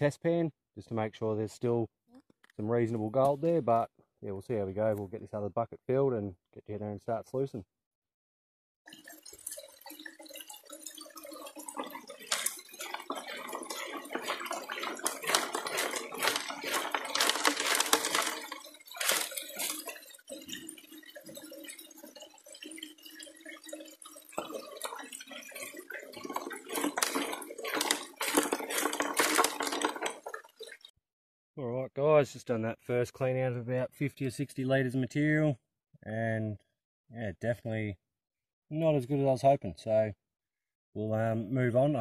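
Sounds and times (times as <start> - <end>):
gravel rattling against metal: 8.9 - 30.9
water gushing into metal hopper: 8.9 - 30.9.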